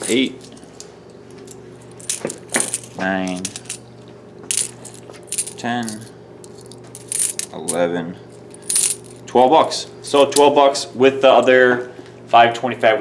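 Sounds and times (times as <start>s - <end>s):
coins clinking: 1.5s - 3.9s, 4.5s - 9.3s.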